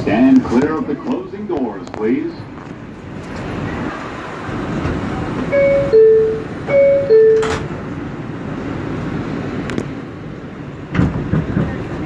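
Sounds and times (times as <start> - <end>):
train rumble: 0.0 - 12.0
two-note door chime: 5.5 - 7.6.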